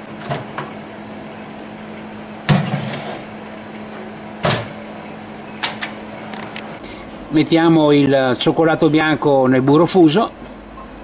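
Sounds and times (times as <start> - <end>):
microwave low hum: 0.0 - 11.0.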